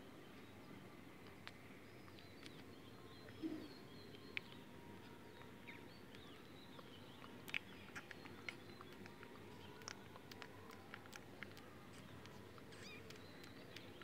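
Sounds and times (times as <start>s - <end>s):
faint high chirping: 0.3s - 14.0s
rabbit nibbling: 6.8s - 14.0s.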